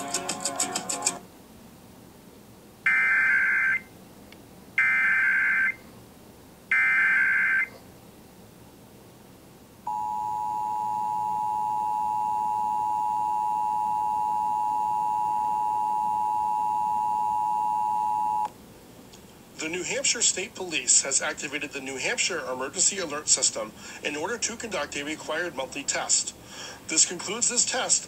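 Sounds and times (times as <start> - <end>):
steady two-tone attention signal: 9.9 - 18.5.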